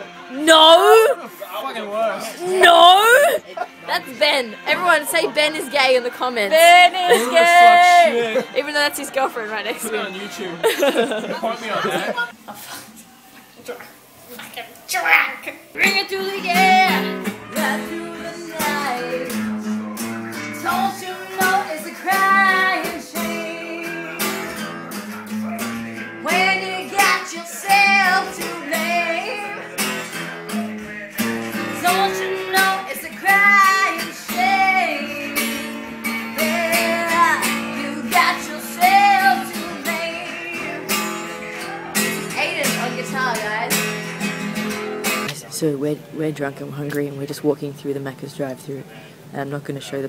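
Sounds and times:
acoustic guitar strumming chords: 0.0 - 1.3, 2.2 - 12.3, 15.8 - 45.4
person singing: 0.0 - 1.4, 2.3 - 8.7, 15.8 - 41.8.

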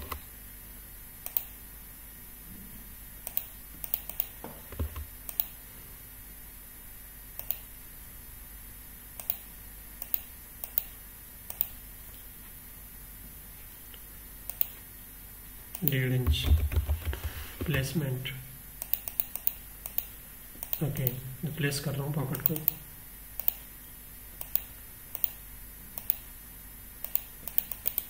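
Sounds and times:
faint steady hum: 0.0 - 28.0
mouse and keyboard clicks: 3.3 - 5.5, 18.8 - 21.2, 27.0 - 28.0.

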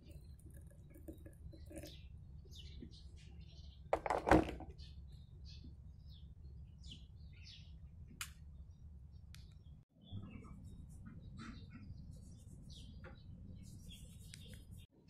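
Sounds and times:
small birds chirping: 0.0 - 15.0
kettle clunking onto base: 4.0 - 4.7.

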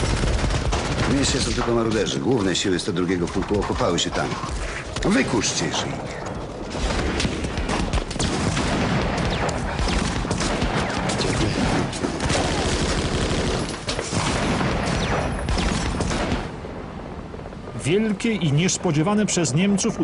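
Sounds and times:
rifle and machine-gun fire: 0.0 - 5.5, 6.7 - 16.6.

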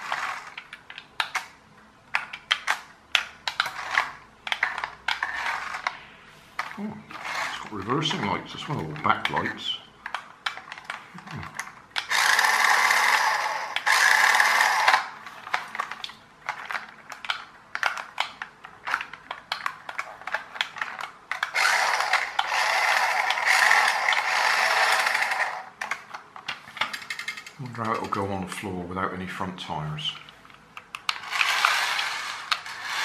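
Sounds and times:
toy car motor whirring: 0.0 - 0.8, 3.4 - 6.0, 6.6 - 8.2, 11.6 - 15.9, 20.0 - 26.0, 31.1 - 33.0.

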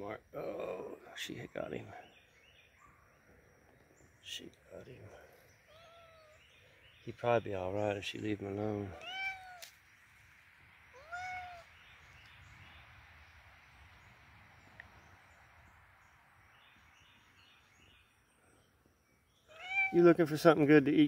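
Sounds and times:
faint outdoor background: 0.0 - 21.0
cat meowing: 5.7 - 6.4, 8.9 - 9.7, 10.9 - 11.7, 19.5 - 20.0.

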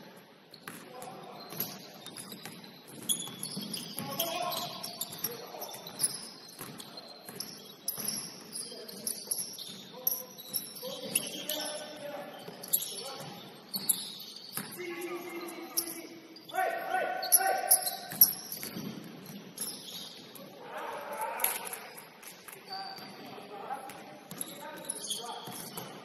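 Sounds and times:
sneakers squeaking on floor: 0.1 - 20.6, 21.4 - 26.0
basketball bouncing on court: 0.6 - 8.6, 12.4 - 14.9, 17.9 - 20.2, 23.0 - 26.0.

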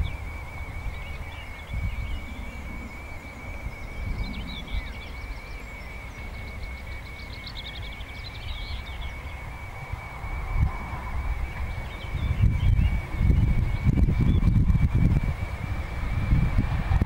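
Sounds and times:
bird trill: 0.0 - 16.2
birds singing: 0.0 - 16.6
thin high whine: 0.0 - 17.0
wind buffeting microphone: 0.0 - 17.0.

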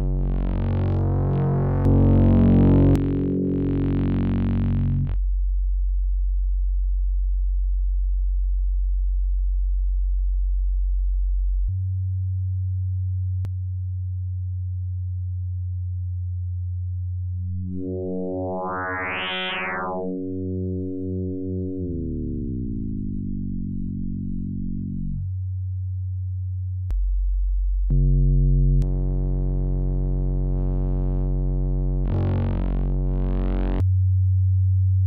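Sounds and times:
synthesizer low note drone: 0.0 - 5.2, 17.4 - 25.4, 27.7 - 33.8.

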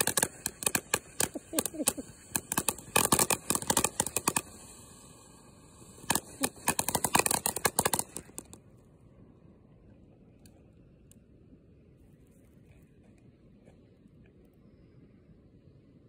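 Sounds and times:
firework hiss: 0.0 - 8.6
firework fountain crackling: 0.0 - 8.8.

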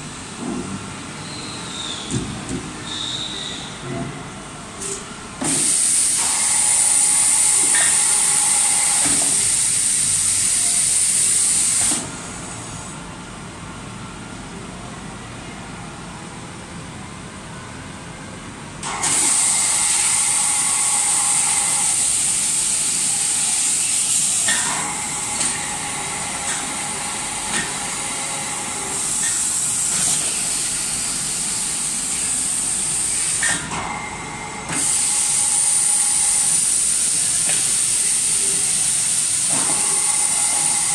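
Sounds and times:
machine hissing: 4.8 - 12.6, 18.8 - 33.6, 34.7 - 40.9.

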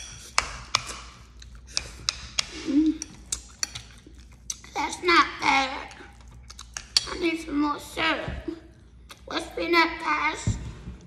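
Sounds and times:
chewing and mouth clicks: 0.2 - 5.0, 5.8 - 7.2, 8.7 - 9.3.

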